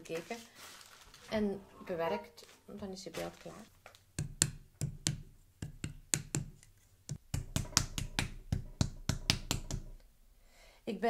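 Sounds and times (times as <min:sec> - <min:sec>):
hands slapping wet clay: 0:04.2 - 0:09.9.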